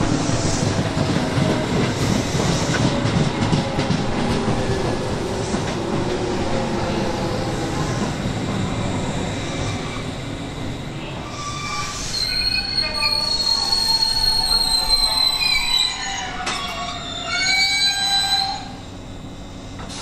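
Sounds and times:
train wheels rumbling: 0.0s - 20.0s
high metallic squeal: 11.2s - 18.8s.

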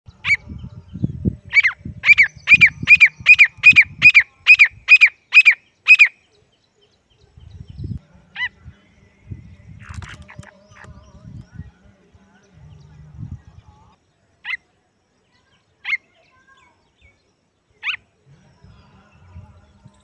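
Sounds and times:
francolin whistled calls: 1.5s - 6.4s.

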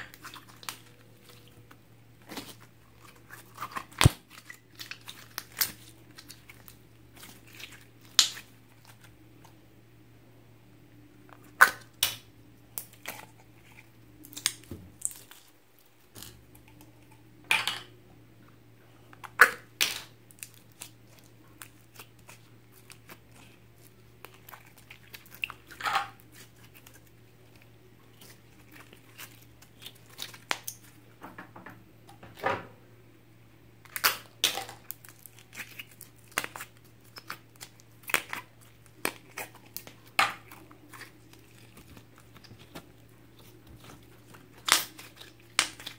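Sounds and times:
slime popping and crackling: 2.2s - 9.2s, 33.8s - 45.9s.

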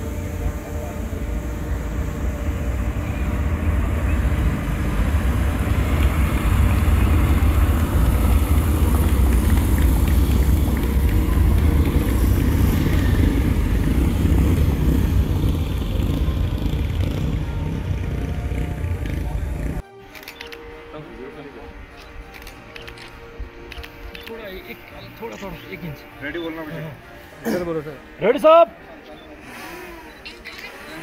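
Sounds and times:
motorcycle engines rumbling past: 0.0s - 19.8s.

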